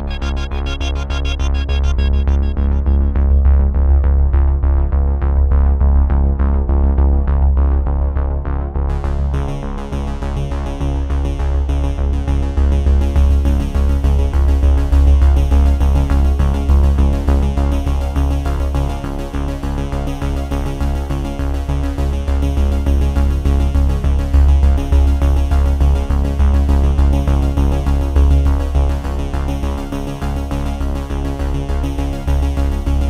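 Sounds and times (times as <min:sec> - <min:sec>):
electronic music with bass beat: 0:00.0 - 0:05.2.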